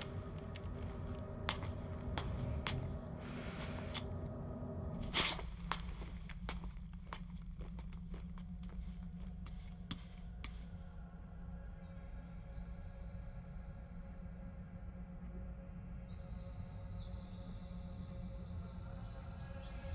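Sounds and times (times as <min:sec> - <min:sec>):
sandal footsteps on tiled floor: 0:00.0 - 0:10.8
steady low hum: 0:00.0 - 0:19.9.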